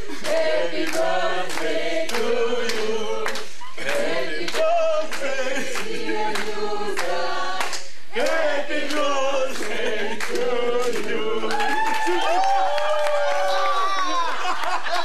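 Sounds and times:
choir singing long notes: 0.3 - 11.9.

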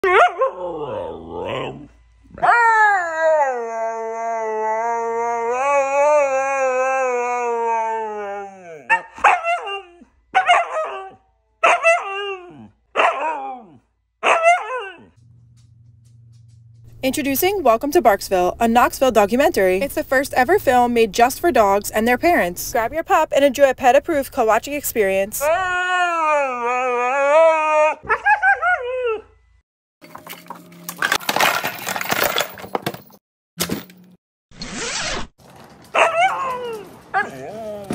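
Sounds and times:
dogs howling and yowling: 0.0 - 15.2, 25.4 - 29.4, 36.0 - 37.9
items tossed into suitcase: 30.0 - 34.1
suitcase zipper: 34.6 - 35.3.

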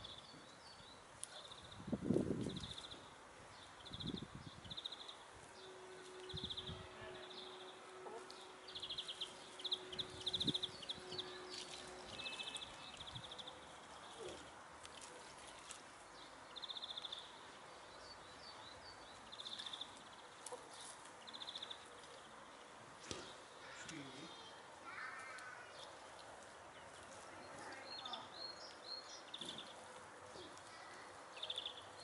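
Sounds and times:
hens scratching in soil: 5.2 - 18.4, 19.0 - 24.1, 24.9 - 31.4.

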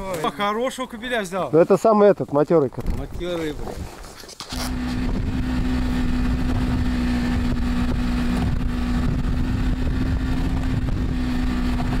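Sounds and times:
wind noise on microphone: 2.7 - 12.0
vehicle engine running: 4.5 - 12.0.

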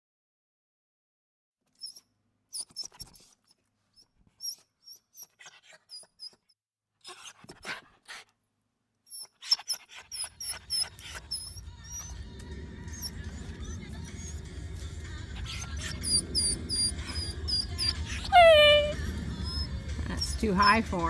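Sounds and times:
dog breathy huffs: 7.1 - 8.3, 9.3 - 12.2, 15.3 - 20.8
dog whimpering: 9.1 - 14.6, 15.2 - 21.0.

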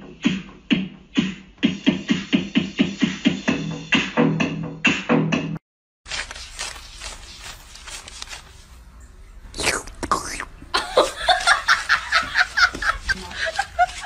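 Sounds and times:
banknotes rustling and flicking: 6.1 - 9.0, 10.8 - 14.0.

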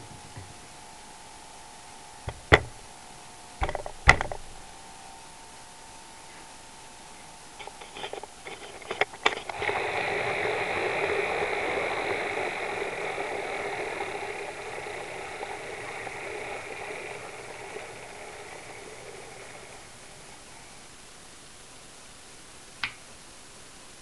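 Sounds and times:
model train running noise: 7.6 - 21.2.

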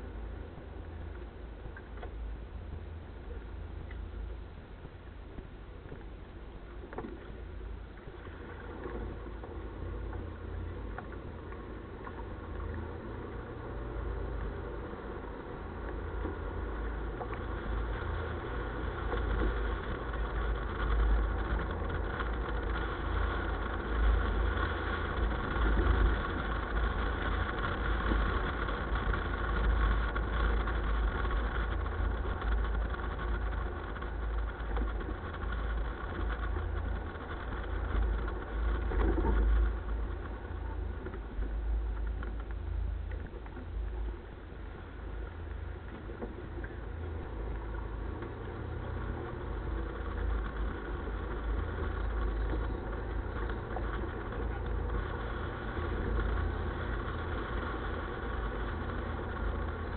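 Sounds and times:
engine rumbling: 0.0 - 59.9.

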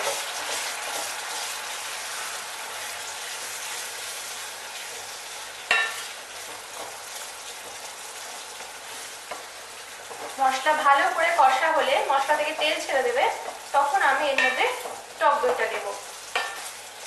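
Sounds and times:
masala sizzling in oil: 0.0 - 17.0.

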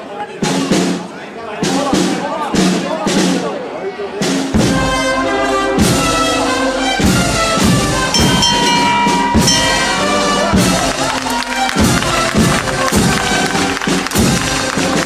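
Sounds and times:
brass band chords: 4.5 - 15.0
steady drum beat: 4.5 - 15.0.

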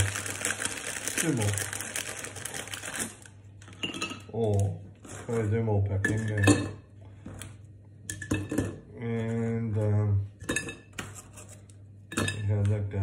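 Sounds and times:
aluminium foil crinkling: 0.0 - 3.8.

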